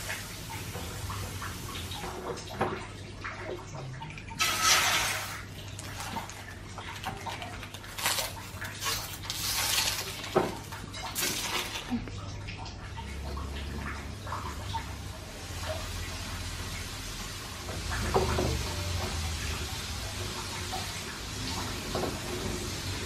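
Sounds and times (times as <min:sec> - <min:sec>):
spatula scraping pan: 0:04.4 - 0:05.5
food sizzling in hot oil: 0:04.4 - 0:06.1.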